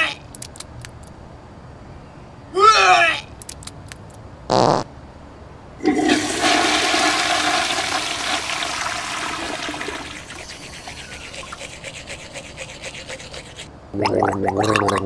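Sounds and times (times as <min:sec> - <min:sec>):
toilet flushing: 0:05.8 - 0:10.6.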